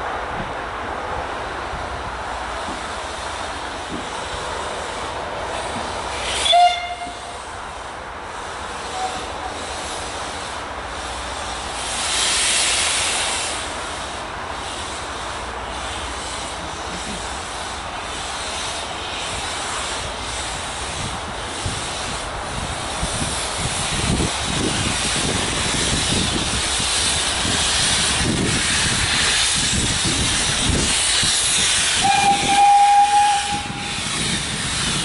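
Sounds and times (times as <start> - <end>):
steam hiss: 1.8 - 35.0
steam locomotive whistle: 6.2 - 7.4, 8.9 - 9.3, 31.6 - 34.1.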